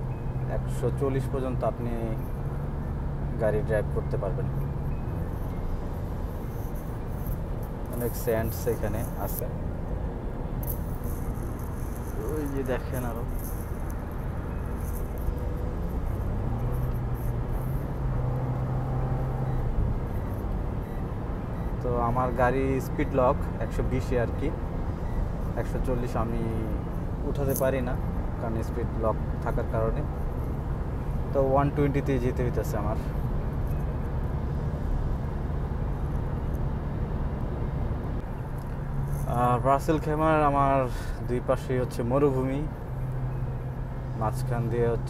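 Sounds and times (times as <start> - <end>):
car road and engine noise: 0.0 - 45.0.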